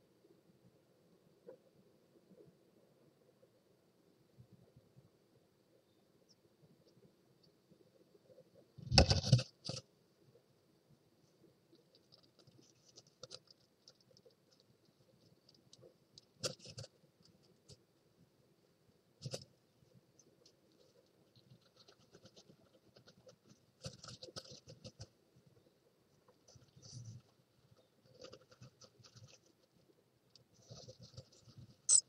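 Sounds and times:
bird scratching in nest: 20.8 - 25.1, 26.4 - 29.8, 30.6 - 31.9.

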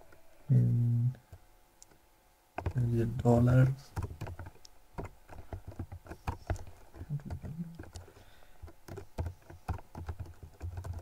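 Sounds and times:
keyboard typing clicks: 4.0 - 11.0.

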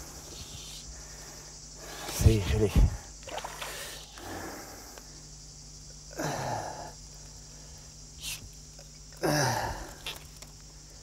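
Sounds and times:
steady low hum: 0.0 - 11.0
man grunting: 9.2 - 9.9.

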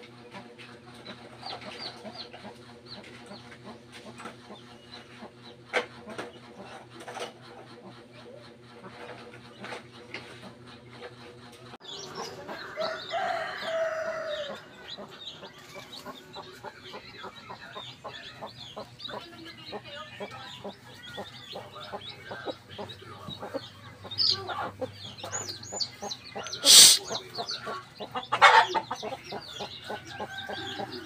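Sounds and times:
chicks peeping: 0.0 - 31.0
hens clucking: 0.0 - 31.0
rooster crowing: 12.6 - 14.8.

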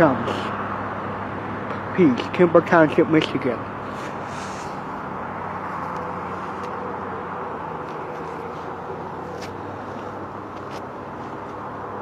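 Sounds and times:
vehicle engines rumbling: 0.0 - 12.0.

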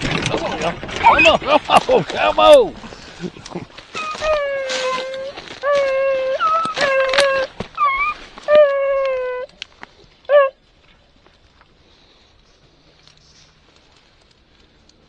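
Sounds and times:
dry brush snapping: 3.4 - 10.0
hound baying: 3.9 - 9.5, 10.3 - 10.6
dog yelp: 4.0 - 9.5, 10.3 - 10.5.

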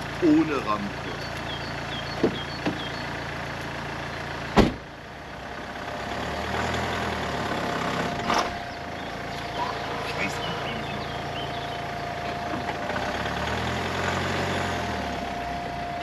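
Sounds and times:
car engine idling: 0.0 - 16.0
car door slamming: 2.1 - 2.9, 4.5 - 4.9.

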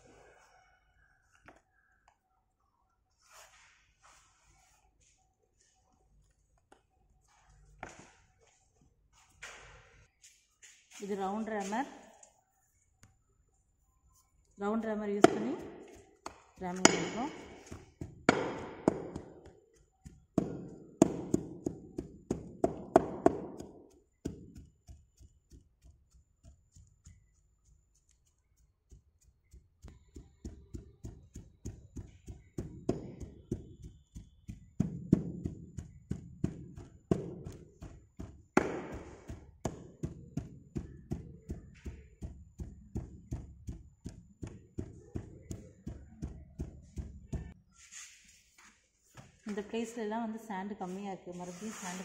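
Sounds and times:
hand rammer thudding on sand: 31.4 - 47.6.

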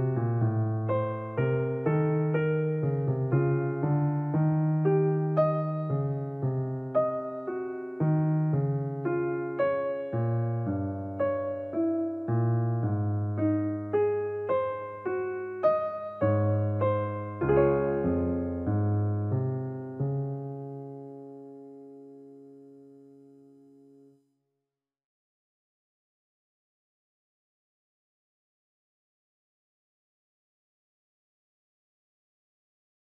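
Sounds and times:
piano music: 0.0 - 24.1.

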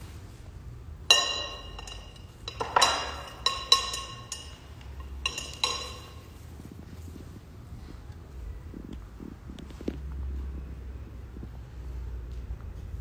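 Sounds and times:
kitchenware clinking: 1.0 - 6.5.

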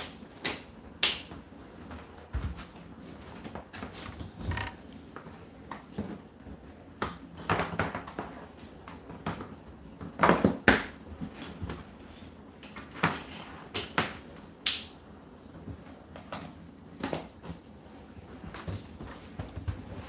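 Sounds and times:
laundry thudding in tumble dryer: 5.6 - 12.0.

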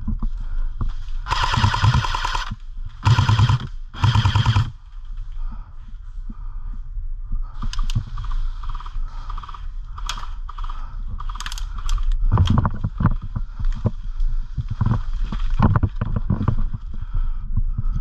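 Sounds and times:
airsoft gun fire bursts: 1.3 - 4.8.

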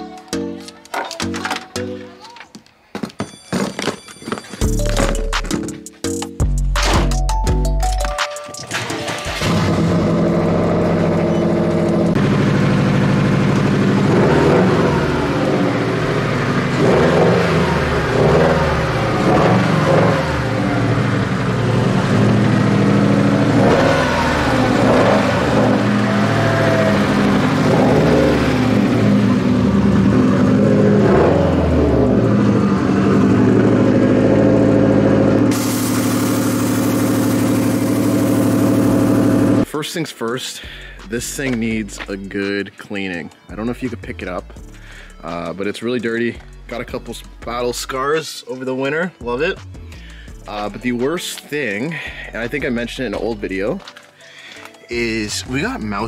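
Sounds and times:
car engine revving: 9.0 - 39.7.

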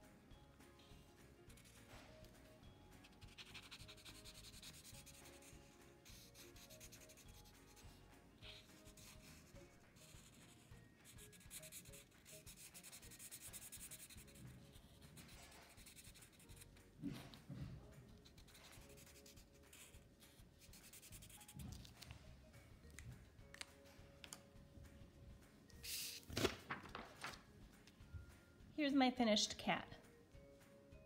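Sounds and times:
marker scratching on paper: 0.8 - 2.4, 3.0 - 17.5, 18.2 - 22.1, 25.8 - 26.3
paper rustle: 25.9 - 27.5.

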